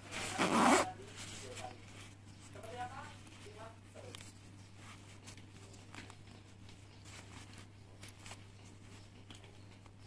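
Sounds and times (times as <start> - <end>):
nylon sleeping bag rustling: 0.0 - 1.3
zipper clicks: 0.4 - 0.9.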